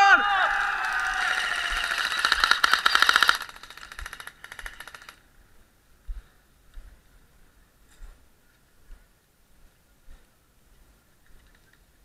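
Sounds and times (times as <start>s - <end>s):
airsoft guns firing bursts: 1.0s - 5.2s.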